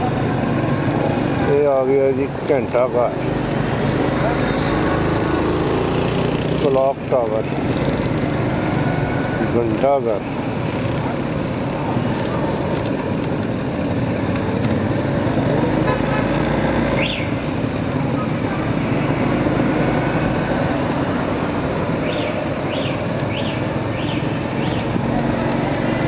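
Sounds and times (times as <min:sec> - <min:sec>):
motorcycle engine: 0:00.0 - 0:26.0.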